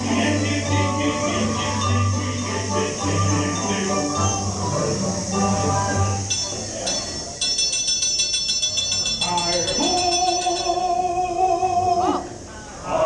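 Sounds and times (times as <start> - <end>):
person singing a long note: 0.0 - 6.2, 9.8 - 13.0
high chimes and bells tinkling: 0.4 - 11.1.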